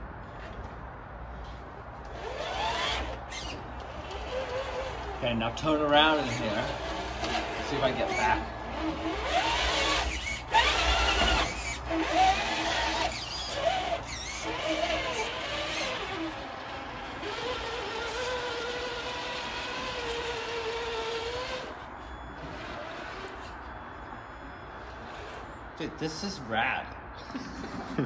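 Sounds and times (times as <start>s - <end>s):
electric motor whining: 2.0s - 23.8s.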